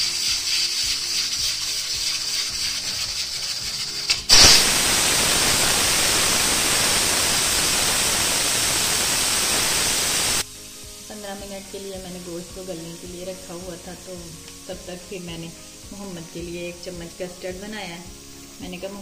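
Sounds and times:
pressure cooker steam hissing: 0:00.0 - 0:19.0
steam rushing: 0:04.2 - 0:10.5.

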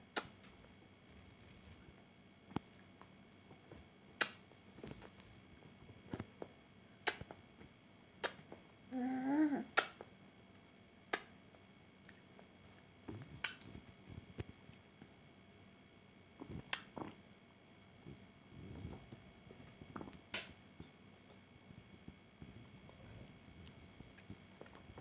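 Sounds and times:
sharp mouth clicks: 0:06.4 - 0:07.4, 0:08.2 - 0:08.6, 0:09.8 - 0:10.1, 0:13.1 - 0:13.7, 0:16.5 - 0:17.2
person humming: 0:08.9 - 0:09.8.

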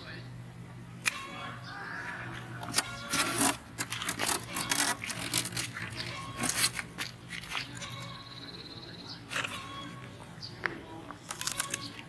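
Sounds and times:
leafy plants rustling: 0:02.8 - 0:08.2.

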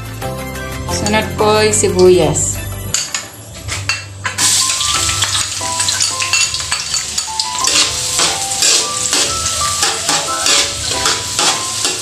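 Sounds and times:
onion sizzling in hot oil: 0:04.3 - 0:12.0
spatula stirring in wok: 0:07.6 - 0:12.0.

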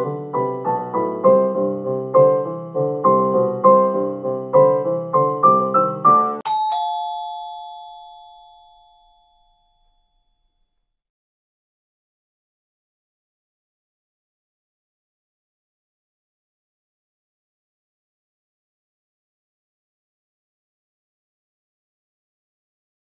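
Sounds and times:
keyboard piano repeated notes: 0:00.0 - 0:07.2
two-tone doorbell chime: 0:06.4 - 0:10.7.

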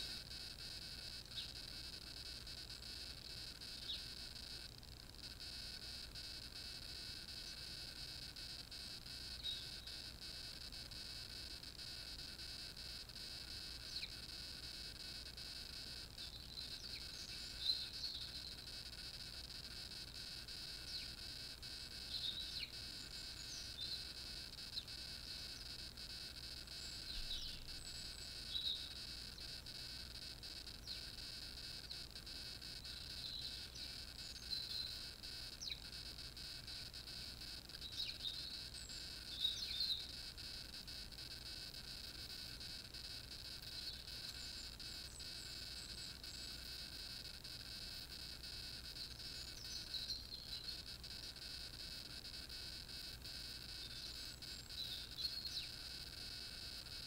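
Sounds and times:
steady high-pitched hiss: 0:00.0 - 0:57.0
small birds chirping: 0:01.1 - 0:04.3, 0:09.2 - 0:10.1, 0:13.8 - 0:14.3, 0:16.1 - 0:26.0, 0:26.6 - 0:29.6, 0:30.5 - 0:31.2, 0:31.8 - 0:36.0, 0:37.7 - 0:40.3, 0:43.6 - 0:46.7, 0:49.0 - 0:51.0, 0:53.8 - 0:55.9.

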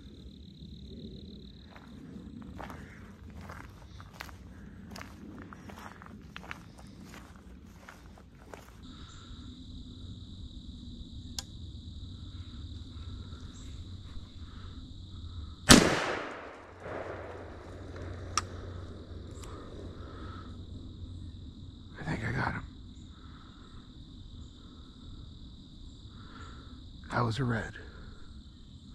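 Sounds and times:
high insect trill: 0:00.0 - 0:28.9
shotgun shot: 0:15.7 - 0:17.7.

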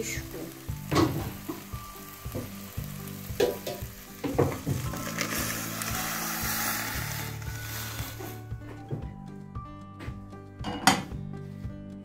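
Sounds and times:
liquid sizzling in hot pot: 0:00.0 - 0:08.7
wooden spoon knocking on pot: 0:03.4 - 0:04.9.

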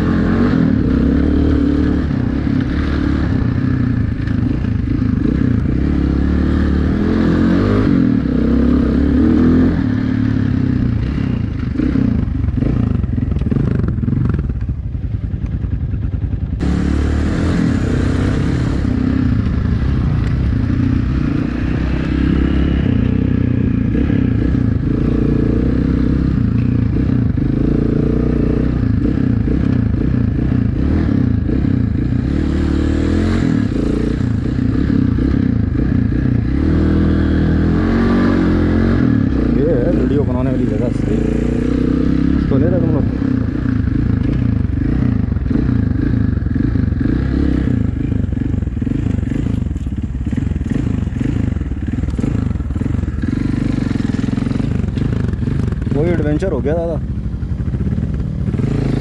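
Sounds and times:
motorcycle engine running: 0:00.0 - 0:59.0
motorcycle rattling: 0:00.0 - 0:59.0.

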